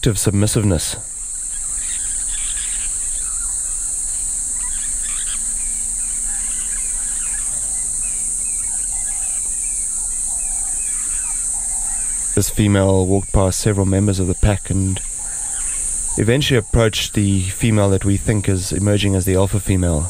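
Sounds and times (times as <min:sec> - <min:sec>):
high-pitched insect chorus: 0:00.0 - 0:20.0
short chirping calls: 0:00.9 - 0:16.6.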